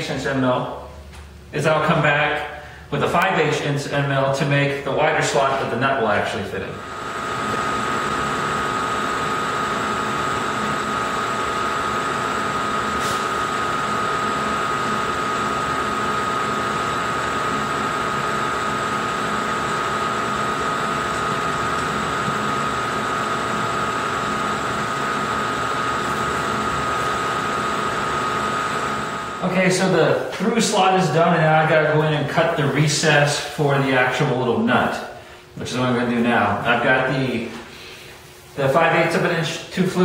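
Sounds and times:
milling machine whining: 0:06.8 - 0:31.0.

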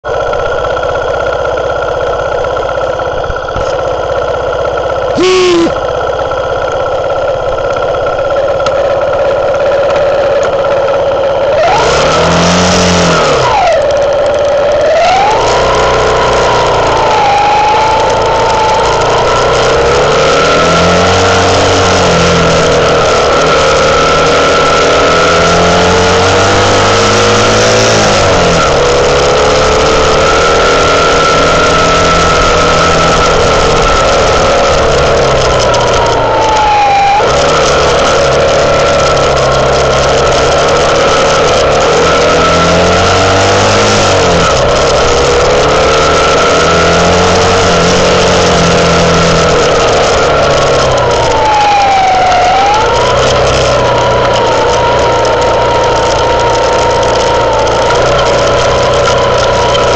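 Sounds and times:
motorcycle engine idling and revving: 0:00.0 - 0:59.9
steady high whine: 0:04.8 - 0:08.2.

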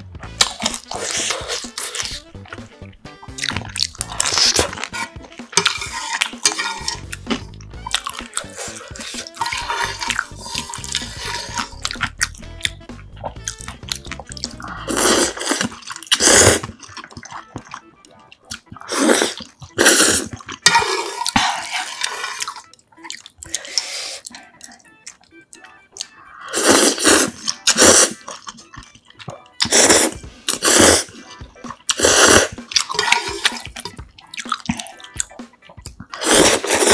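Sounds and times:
loud wet noodle slurps: 0:00.4 - 0:02.3, 0:03.3 - 0:12.1, 0:14.4 - 0:17.4, 0:18.7 - 0:22.7, 0:26.4 - 0:28.5, 0:29.6 - 0:35.0, 0:36.1 - 0:36.9.

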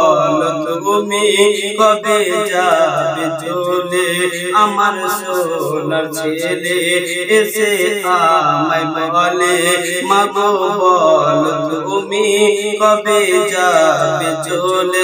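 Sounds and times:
man singing devotional song: 0:00.0 - 0:15.0.

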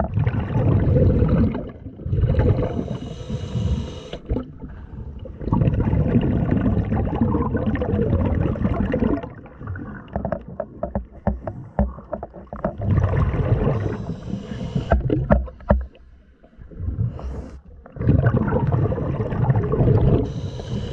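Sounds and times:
underwater bubbling and rumbling: 0:00.0 - 0:20.9
knocks and clicks: 0:10.1 - 0:12.8.

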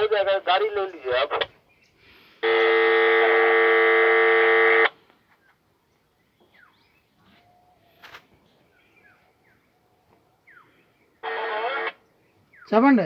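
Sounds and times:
loud electronic buzz tone: 0:02.4 - 0:04.9, 0:11.2 - 0:12.0.

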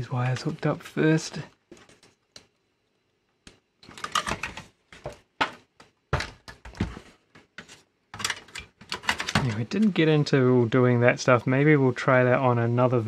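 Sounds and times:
tape mechanism knocks and rattles: 0:08.1 - 0:09.6.

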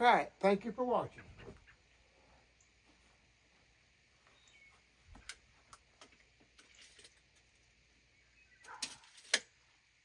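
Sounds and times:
small metal clatter: 0:06.6 - 0:07.5, 0:08.7 - 0:09.5.

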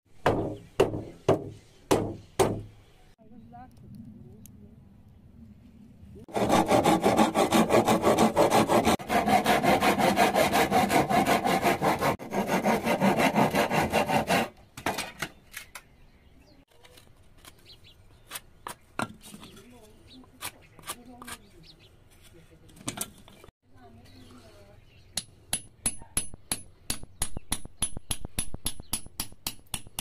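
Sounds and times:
hand saw cutting wooden board: 0:06.3 - 0:15.0.

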